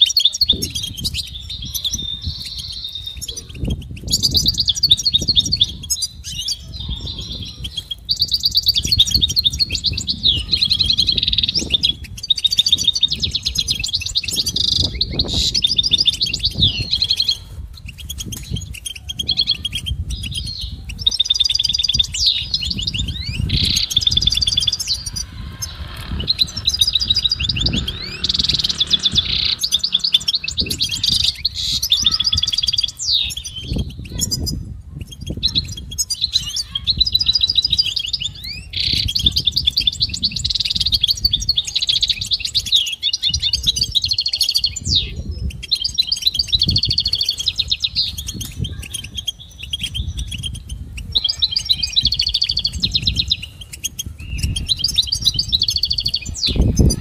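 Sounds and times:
bird twittering trills: 0:00.0 - 0:57.0
low rumble: 0:22.7 - 0:31.6.

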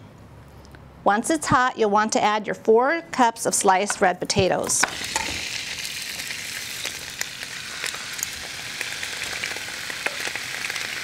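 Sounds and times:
potatoes sizzling in oil: 0:04.6 - 0:11.0
small pops and crackles: 0:06.8 - 0:11.0.

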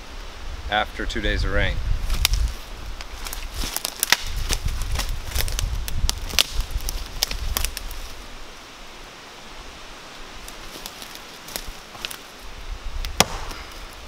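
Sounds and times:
twigs snapping underfoot: 0:02.0 - 0:08.2, 0:10.4 - 0:12.4, 0:13.0 - 0:14.0
footsteps through dry leaves: 0:02.0 - 0:08.4, 0:10.4 - 0:12.5.

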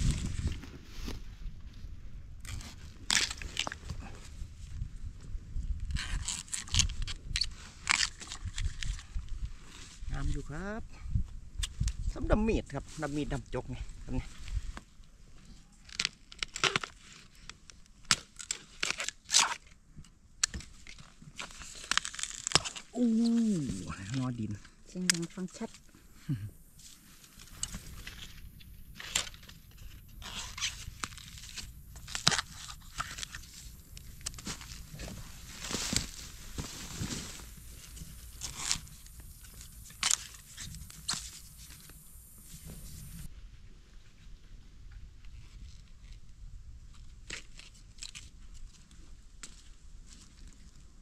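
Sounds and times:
dry bamboo leaves crackling: 0:02.4 - 0:04.2, 0:05.9 - 0:10.8, 0:15.8 - 0:19.8, 0:20.5 - 0:43.3
dry leaves crunching and rustling: 0:26.8 - 0:41.9.

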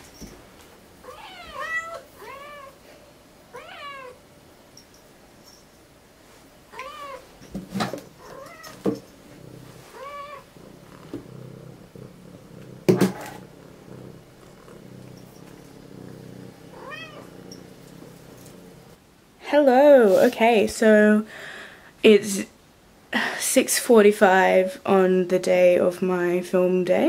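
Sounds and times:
cat meowing: 0:01.0 - 0:02.8, 0:03.5 - 0:04.2, 0:06.7 - 0:07.2, 0:08.2 - 0:08.8, 0:09.9 - 0:10.5, 0:16.7 - 0:17.6
sharp knocks: 0:12.8 - 0:13.4.

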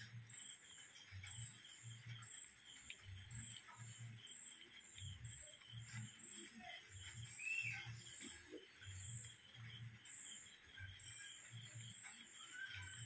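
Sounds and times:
insect chirping: 0:00.0 - 0:13.0.

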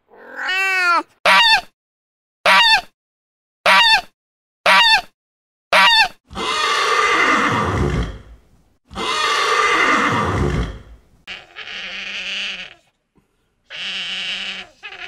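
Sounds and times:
animal calling: 0:08.9 - 0:13.0, 0:13.7 - 0:15.0.

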